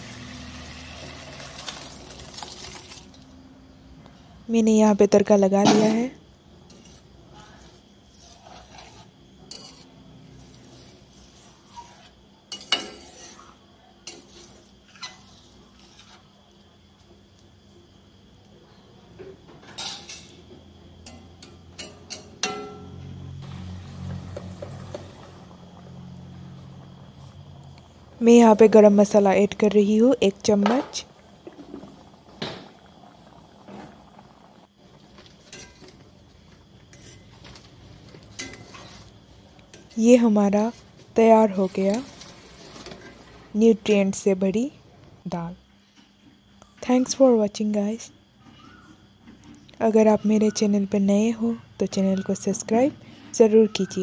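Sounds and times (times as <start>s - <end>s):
metal spatula scraping pot: 6.6s - 16.3s, 35.2s - 36.0s, 36.9s - 39.1s, 39.7s - 43.4s.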